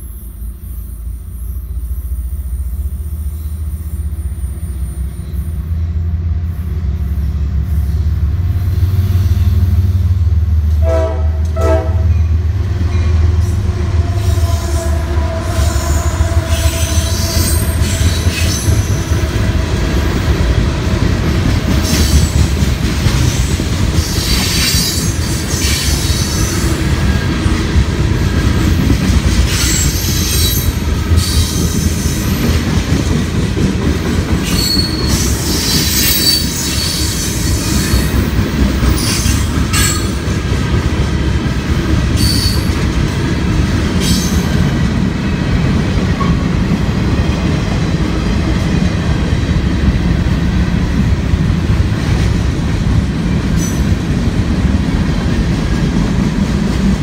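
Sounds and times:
train horn: 0:10.7 - 0:12.3, 0:13.9 - 0:18.2
train wheels clattering and squealing: 0:12.1 - 0:19.6, 0:21.2 - 0:50.0, 0:53.4 - 0:54.1.

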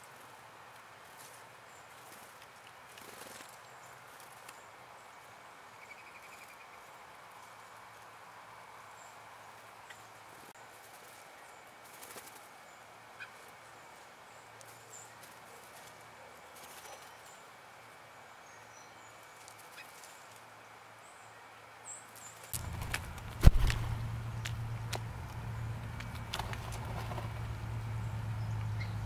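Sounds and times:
birds hopping and pecking: 0:00.0 - 0:05.2, 0:09.5 - 0:17.6, 0:19.1 - 0:20.6, 0:22.0 - 0:29.0
wingbeats fluttering: 0:01.0 - 0:04.7, 0:10.4 - 0:13.5, 0:14.7 - 0:17.3, 0:19.2 - 0:20.5, 0:22.1 - 0:28.9
faint high bird chirps: 0:05.8 - 0:06.9
loud rustle with low rumble: 0:22.3 - 0:28.4.

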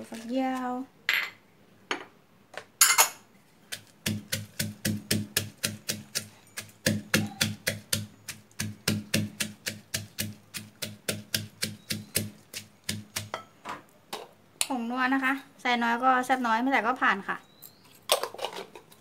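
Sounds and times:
wooden pestle pounding in mortar: 0:03.7 - 0:13.4.

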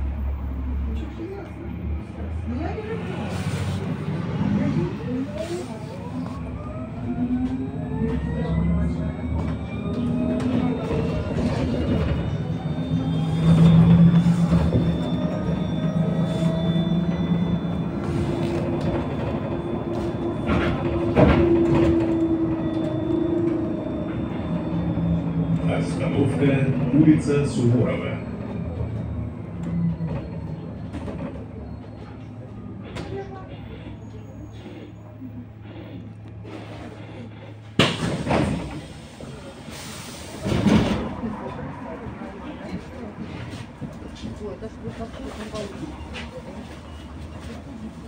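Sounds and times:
electric bus humming: 0:00.0 - 0:48.0
road rumble: 0:00.0 - 0:48.0
bus doors banging: 0:18.0 - 0:23.9, 0:37.7 - 0:39.0.

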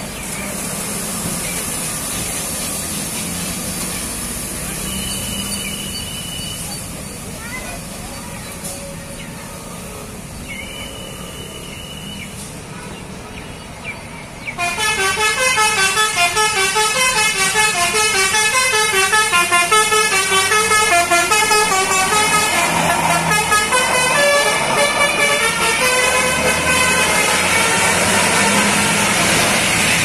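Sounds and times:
musical horn melody: 0:14.6 - 0:29.4
heavy vehicle passing: 0:15.0 - 0:30.0.

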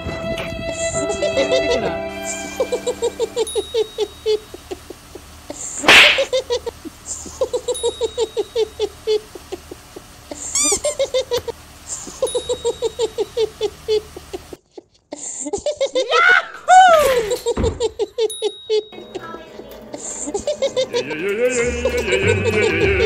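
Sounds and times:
sneeze-like burst: 0:05.8 - 0:06.3
animal yipping calls: 0:05.8 - 0:06.4.

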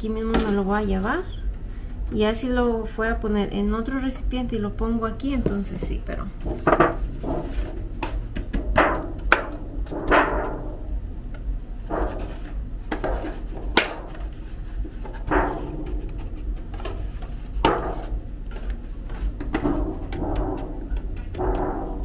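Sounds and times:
baking pan knocking: 0:05.4 - 0:10.9, 0:15.0 - 0:22.0.

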